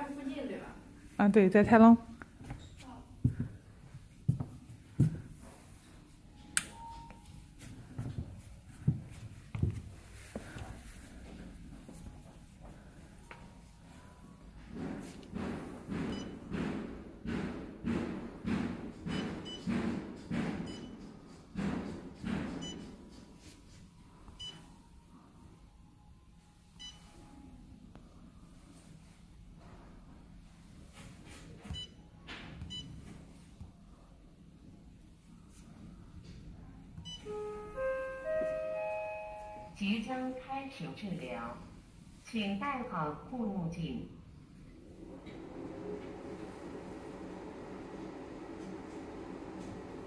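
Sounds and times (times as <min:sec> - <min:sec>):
faint short beep: 0:06.7 - 0:07.3.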